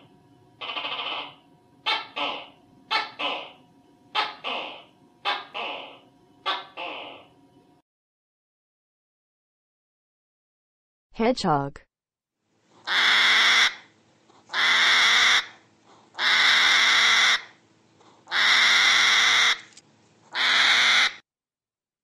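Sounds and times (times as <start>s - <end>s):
hedgehog hissing: 0.6s - 7.3s, 12.8s - 19.6s, 20.3s - 21.2s.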